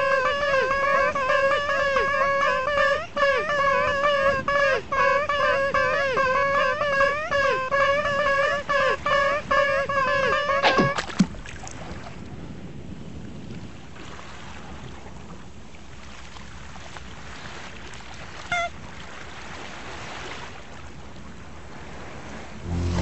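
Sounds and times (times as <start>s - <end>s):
brief high squeak: 10.6s - 11.1s, 22.7s - 23.0s
waves washing: 10.6s - 23.0s.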